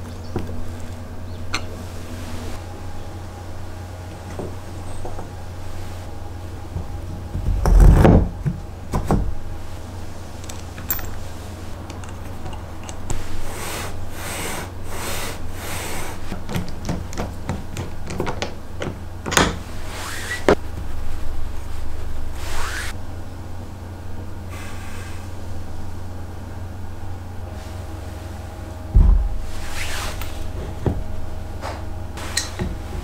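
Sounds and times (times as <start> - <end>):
steady low hum: 0.0 - 33.0
loud thud: 28.9 - 29.7.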